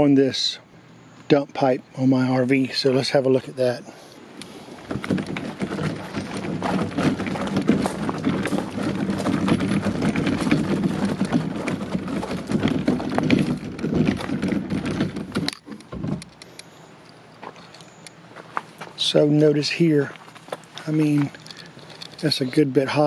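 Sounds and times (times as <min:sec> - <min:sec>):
wheels crunching on gravel: 0:01.4 - 0:23.0
footsteps on gravel: 0:04.4 - 0:16.2, 0:17.3 - 0:23.0.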